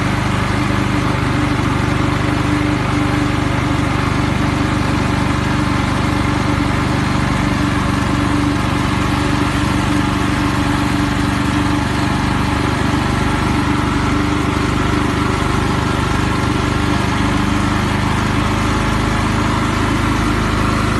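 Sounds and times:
snowblower engine running: 0.0 - 20.9.

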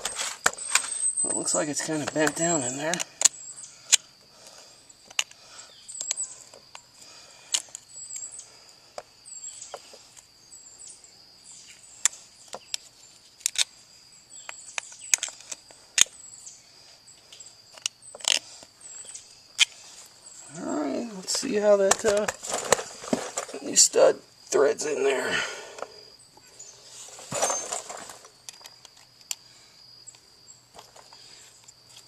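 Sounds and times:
birds chirping: 0.0 - 13.2, 14.0 - 28.8.

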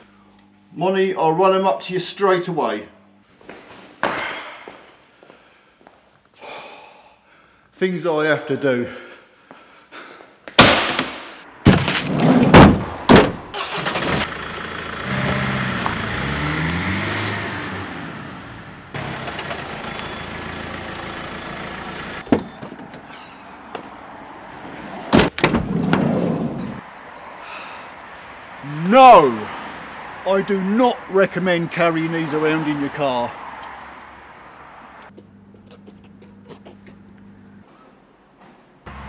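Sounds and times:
door slams: 10.6 - 13.5
van engine running: 13.6 - 22.3.

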